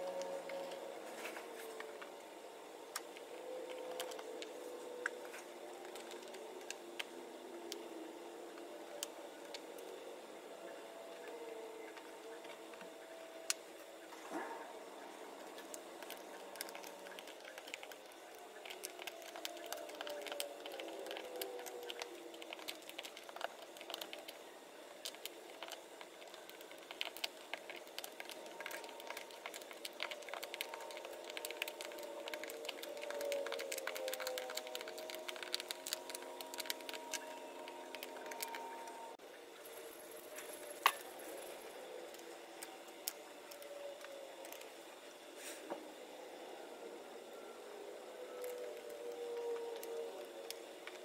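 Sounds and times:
small items clicking and tapping: 15.5 - 39.0.

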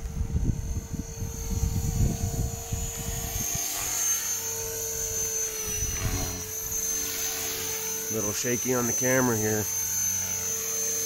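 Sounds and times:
gusty low rumble: 0.0 - 3.6
rc helicopter rotor whine: 0.0 - 11.0.

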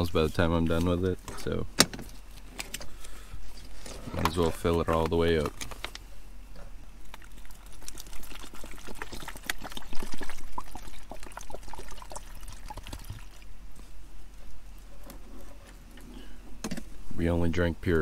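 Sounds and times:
water pouring into reservoir: 7.0 - 13.5.

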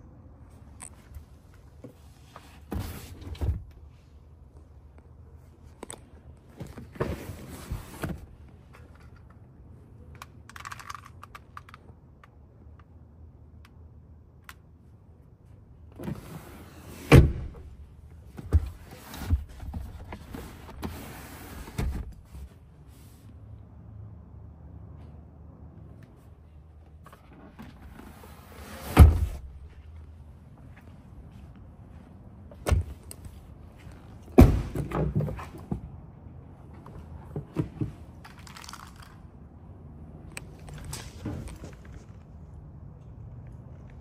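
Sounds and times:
rustling of leather and trim: 40.4 - 42.5.

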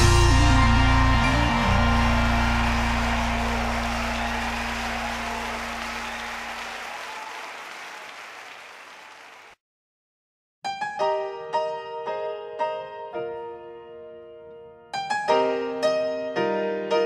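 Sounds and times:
piano notes: 0.0 - 6.0, 10.6 - 17.0
audience applauding: 0.0 - 9.6.

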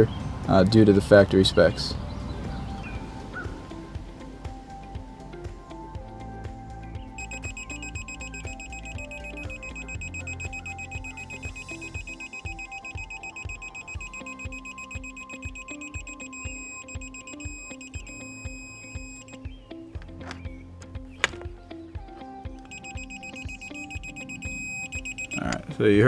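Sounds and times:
background music with steady beat: 0.0 - 26.0
high-pitched electronic beep: 7.2 - 19.4, 22.7 - 25.5.

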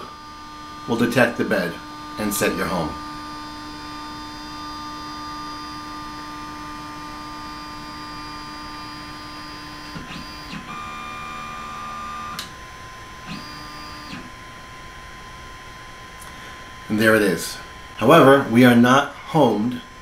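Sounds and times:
stepper motors whining: 0.0 - 14.8.

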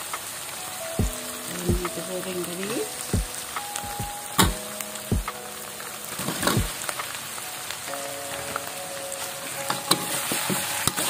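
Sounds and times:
frying in hot oil sizzling: 6.1 - 11.0.

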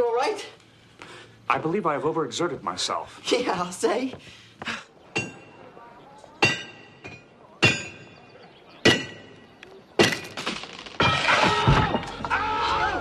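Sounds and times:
hammer clanging on anvil: 6.4 - 8.1, 8.8 - 9.4.

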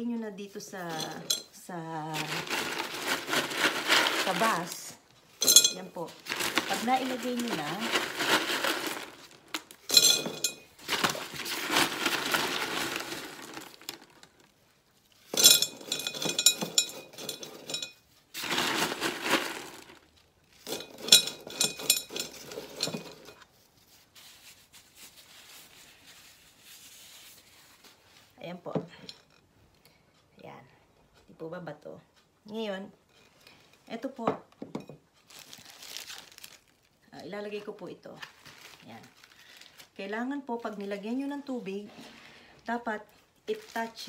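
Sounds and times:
pebbles clattering into glass vase: 0.8 - 1.5, 2.1 - 14.3, 15.3 - 23.4.

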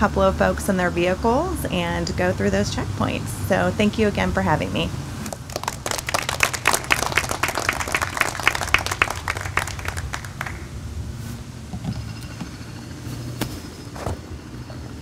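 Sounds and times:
small audience applauding: 5.3 - 10.8.

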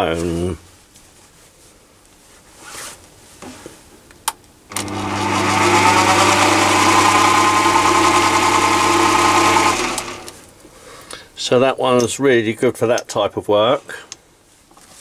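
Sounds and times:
lathe motor humming and whining: 4.7 - 10.3.

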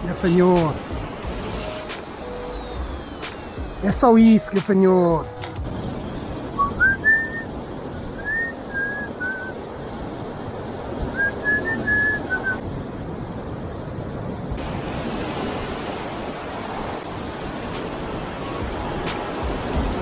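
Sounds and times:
sea surf on rocks: 0.0 - 20.0
wind: 0.0 - 20.0
person whistling a tune: 6.6 - 7.5, 8.2 - 9.5, 11.2 - 12.6.

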